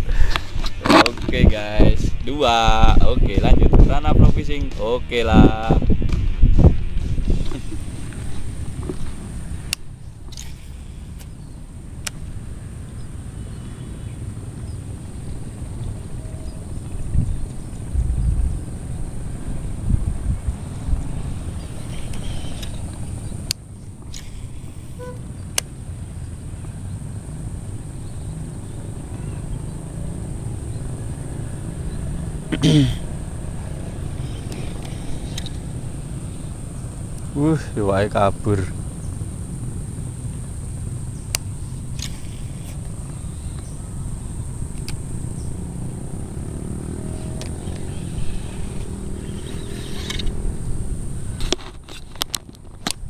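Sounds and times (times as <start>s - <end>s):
wind buffeting microphone: 0.0s - 10.4s, 11.1s - 53.0s
high insect drone: 6.6s - 53.0s
brief tone: 25.0s - 25.2s.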